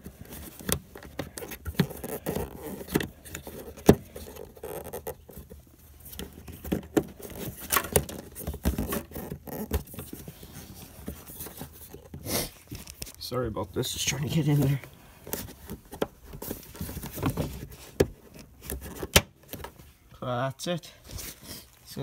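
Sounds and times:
plastic clicking and scraping: 0.0 - 13.2.

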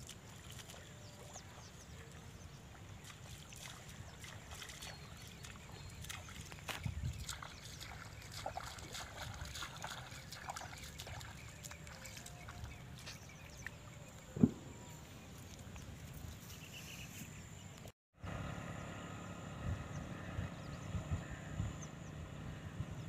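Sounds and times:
footsteps splashing through water: 0.0 - 14.6
loud thump: 14.4 - 14.7.

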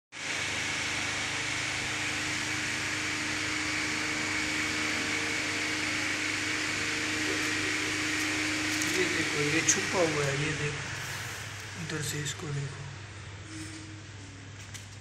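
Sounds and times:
motor humming: 0.2 - 15.0.

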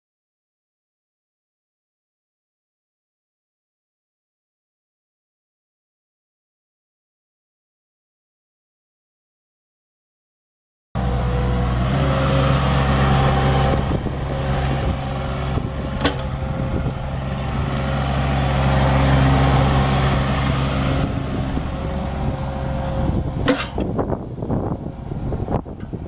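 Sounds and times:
excavator diesel engine running: 11.0 - 26.0.

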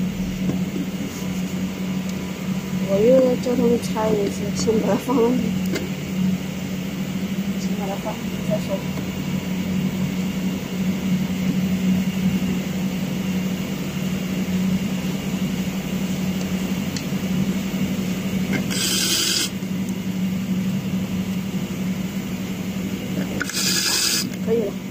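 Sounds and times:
low mechanical hum: 0.0 - 24.9
electric screwdriver whirring: 18.5 - 19.6, 23.2 - 24.4.

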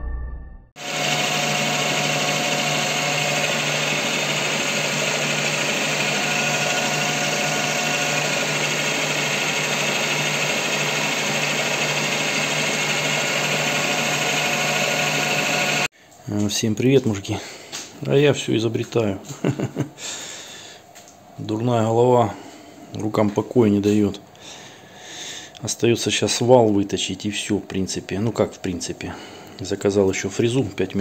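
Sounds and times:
metal lathe cutting: 0.8 - 15.9.

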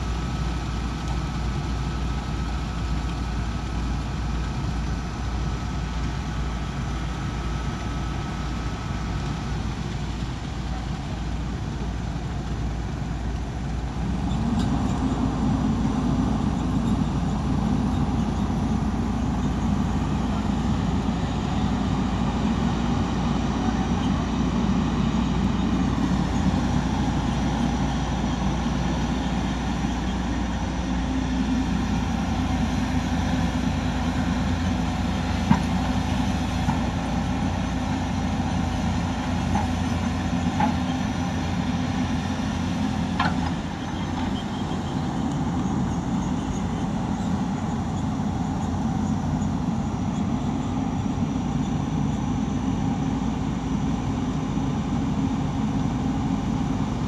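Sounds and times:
diesel construction machinery running: 0.0 - 57.0.

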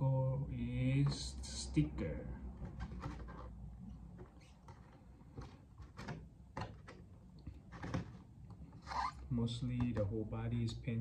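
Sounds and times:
plastic shell scraping and crinkling: 2.6 - 3.6, 4.2 - 9.1.

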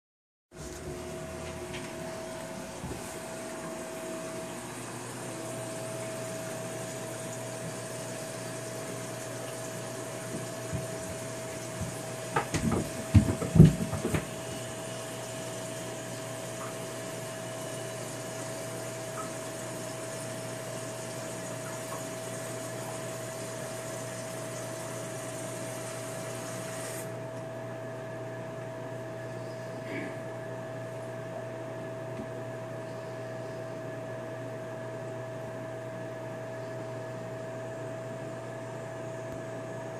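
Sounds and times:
knocks and bumps: 11.8 - 14.4.

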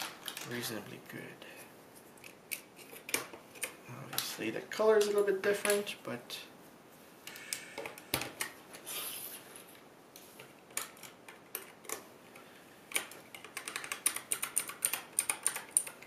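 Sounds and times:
mechanical keyboard clicks: 12.9 - 16.0.

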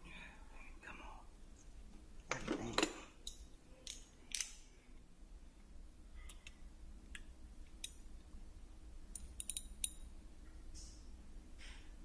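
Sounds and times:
metal tool clicks: 2.8 - 4.6, 9.1 - 10.1.

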